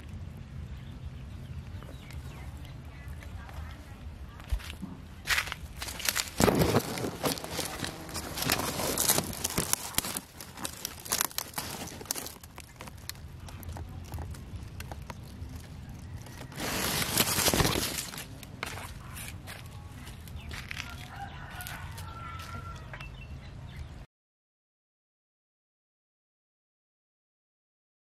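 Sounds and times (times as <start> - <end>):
dry leaves and twigs crunching: 4.4 - 23.1.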